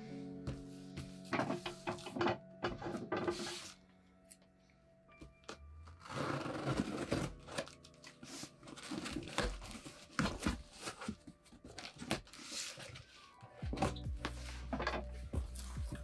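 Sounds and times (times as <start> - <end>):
tape and cardboard tearing: 5.9 - 8.0.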